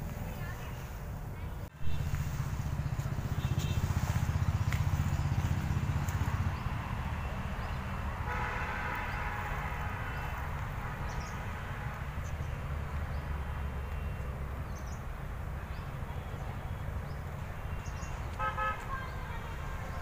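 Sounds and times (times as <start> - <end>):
low traffic rumble: 0.0 - 20.0
drawn-out car horn: 3.2 - 4.2, 8.2 - 12.1, 18.3 - 19.1.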